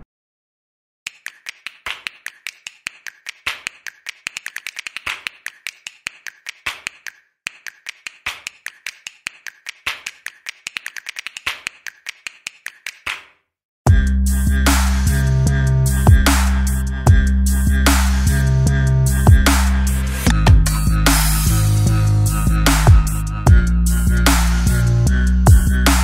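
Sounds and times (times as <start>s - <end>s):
rapid sharp clicks and snaps: 1.1s - 13.4s.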